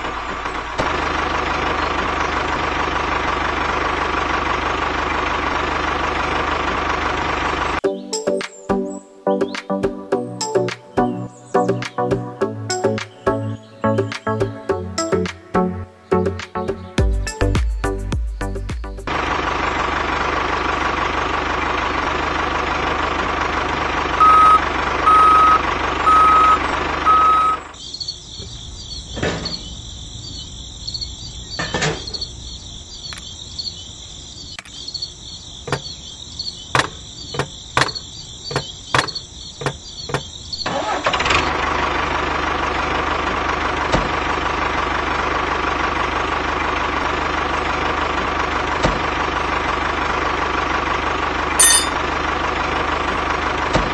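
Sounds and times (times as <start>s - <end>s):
tractor engine running: 0.0s - 7.8s, 19.1s - 33.8s, 34.4s - 53.9s
short horn beeps: 24.2s - 27.7s, 51.6s - 52.0s
clicks and knocks: 35.7s - 36.0s, 36.8s - 40.3s.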